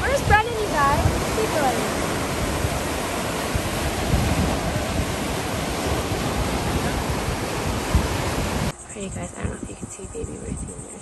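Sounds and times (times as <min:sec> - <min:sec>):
ocean waves breaking on beach: 0:00.0 - 0:08.8
wind buffeting microphone: 0:00.0 - 0:11.0.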